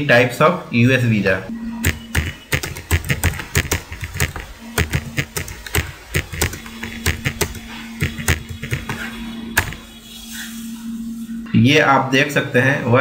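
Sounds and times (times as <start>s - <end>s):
computer keyboard key clicks: 1.8s - 9.0s.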